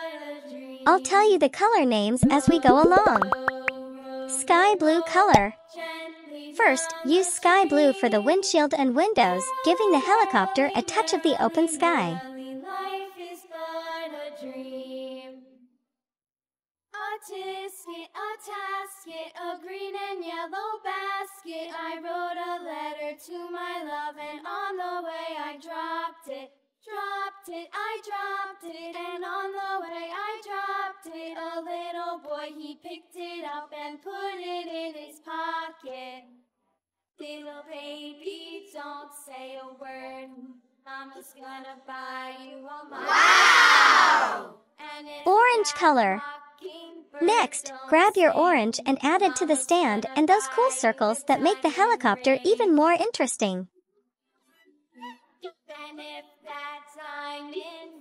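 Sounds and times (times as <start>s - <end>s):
child-like voice singing: 0.0s - 5.5s, 6.6s - 12.3s, 45.3s - 46.2s, 47.2s - 53.6s.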